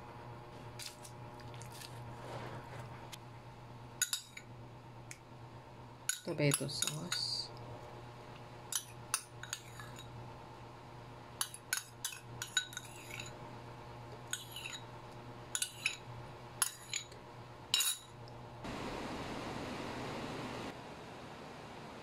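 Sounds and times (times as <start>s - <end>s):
metal spoon scraping glass bowl: 12.4s - 13.4s, 14.3s - 14.9s, 15.6s - 16.0s.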